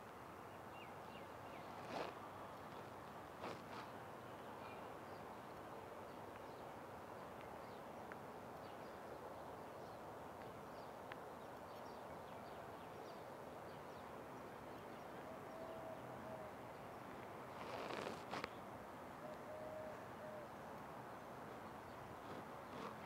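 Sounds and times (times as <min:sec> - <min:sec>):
outdoor background hiss: 0:00.0 - 0:23.0.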